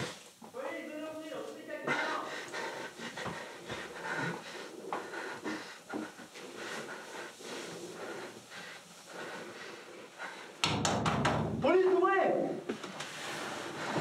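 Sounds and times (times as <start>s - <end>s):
man breathing heavily: 1.9s - 10.6s.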